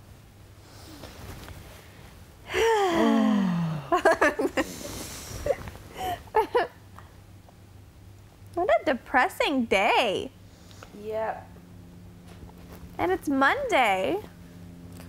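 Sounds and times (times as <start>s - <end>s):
woman making wordless vocal sounds: 2.5s - 3.9s.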